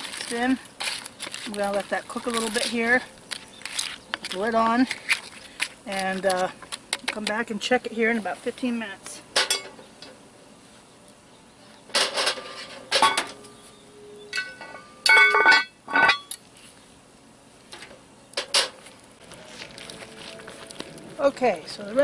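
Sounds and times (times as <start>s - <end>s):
metal pot lid clanking: 14.4s - 16.3s.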